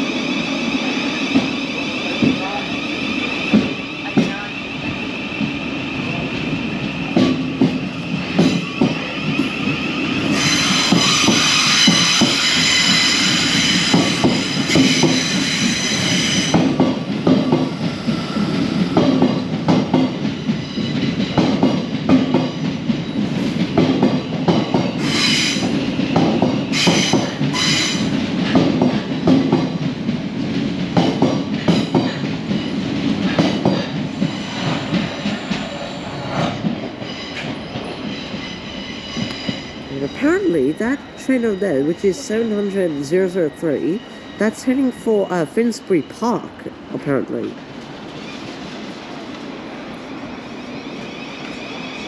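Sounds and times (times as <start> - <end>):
train wheels clicking over rail joints: 7.0 - 9.5, 10.2 - 39.8
high wheel squeal: 10.3 - 16.6.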